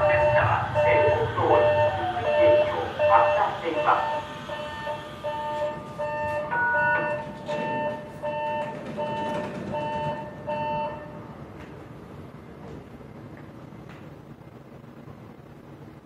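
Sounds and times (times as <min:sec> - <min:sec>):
two-tone train door chime beeps: 0:00.0 - 0:11.4.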